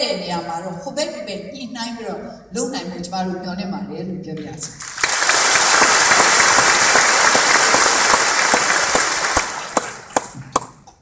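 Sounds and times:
audience applauding: 4.8s - 10.8s.

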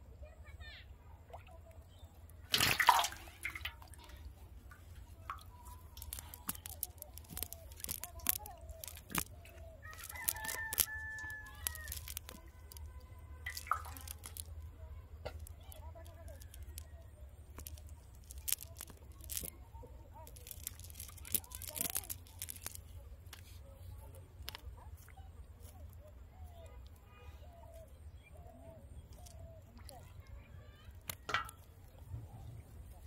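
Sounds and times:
fish splashing into water: 2.3s - 14.6s, 17.5s - 19.6s, 20.2s - 22.9s, 31.0s - 32.0s
clicks and rustles of fishing net: 2.3s - 27.9s, 29.1s - 30.1s, 30.9s - 33.0s
chickens calling: 6.1s - 12.3s.

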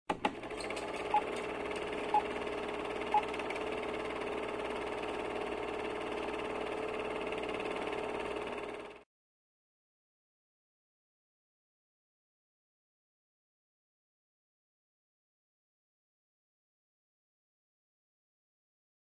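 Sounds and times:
film projector whirring rattle: 0.1s - 9.0s.

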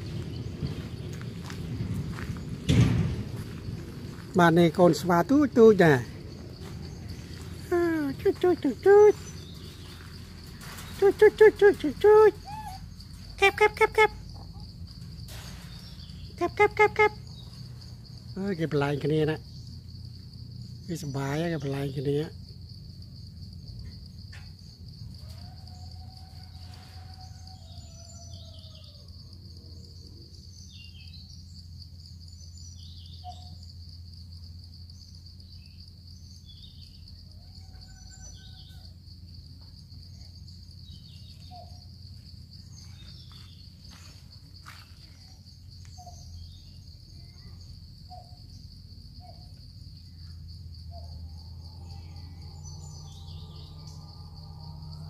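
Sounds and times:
insects droning: 0.0s - 55.0s
bird chirps: 6.8s - 13.4s, 32.2s - 33.7s, 40.2s - 42.0s, 44.7s - 49.6s, 50.2s - 55.0s.

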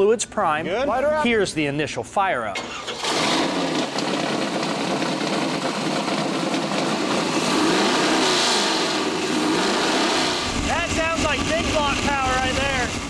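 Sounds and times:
engine running and revving: 3.0s - 13.0s.

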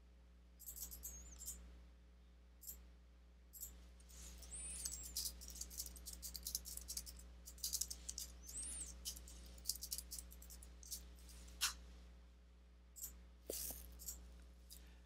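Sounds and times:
keyboard typing: 4.4s - 11.0s.

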